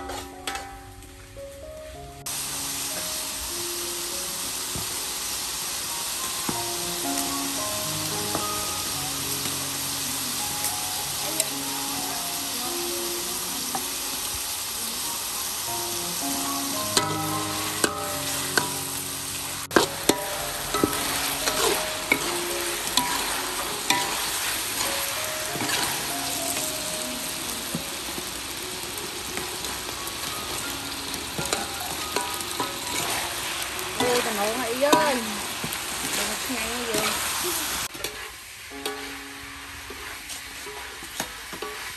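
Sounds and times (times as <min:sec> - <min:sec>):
spatula scraping a wok: 0:00.0 - 0:00.6, 0:17.0 - 0:26.1, 0:31.3 - 0:39.2, 0:39.9 - 0:41.9
food sizzling in a wok: 0:00.0 - 0:41.9
spatula clanking on a wok: 0:16.9 - 0:18.9, 0:19.7 - 0:25.0, 0:31.3 - 0:33.2, 0:39.9 - 0:41.9.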